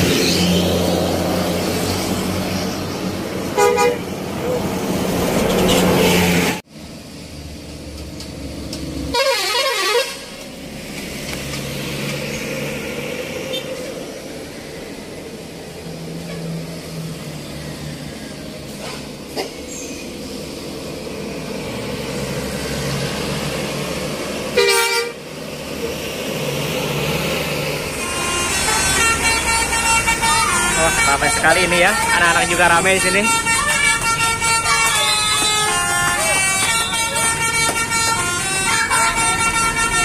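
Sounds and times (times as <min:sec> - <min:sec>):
bus engines running: 0:00.0 - 0:40.0
bus musical horn tune: 0:03.5 - 0:04.2, 0:09.1 - 0:10.4, 0:24.5 - 0:25.2, 0:27.9 - 0:40.0.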